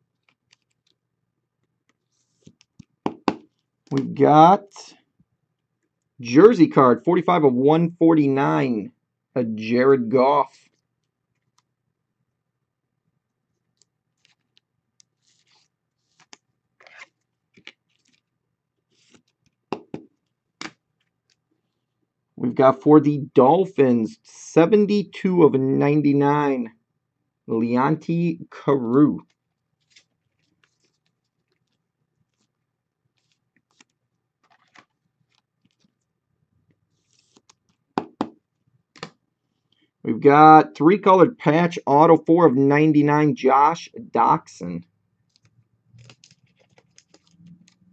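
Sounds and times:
trading cards rustling and clicking: 0.1 - 1.0, 1.8 - 4.2, 13.7 - 21.7, 29.2 - 36.1, 36.7 - 38.3, 45.2 - 47.9.

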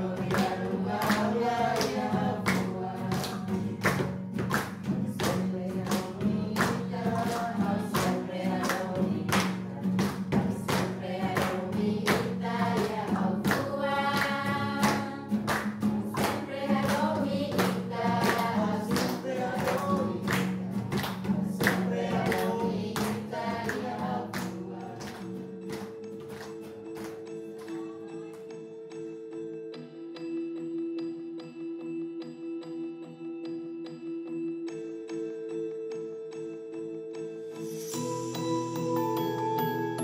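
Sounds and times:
group singing over a beat: 0.0 - 25.4.

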